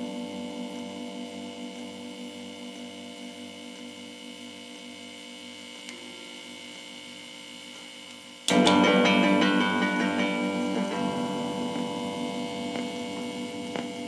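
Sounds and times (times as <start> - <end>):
steady pulsing hum: 0.0 - 14.0
music chord of ringing notes: 8.5 - 14.0.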